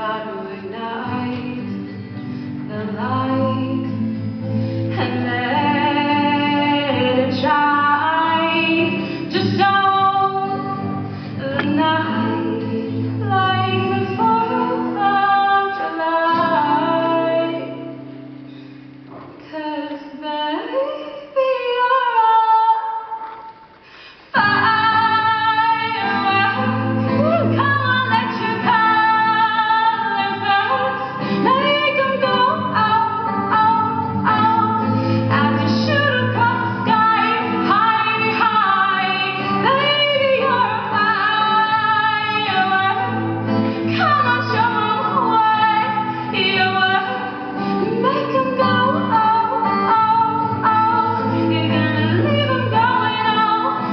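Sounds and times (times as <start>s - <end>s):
woman singing: 0.0s - 18.1s, 19.2s - 23.6s, 24.3s - 53.9s
acoustic guitar strumming: 0.0s - 19.5s, 24.3s - 53.9s.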